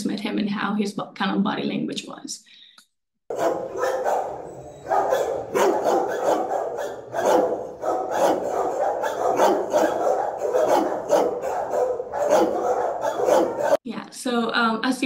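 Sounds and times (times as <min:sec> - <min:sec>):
dog barking: 0:03.3 - 0:13.8.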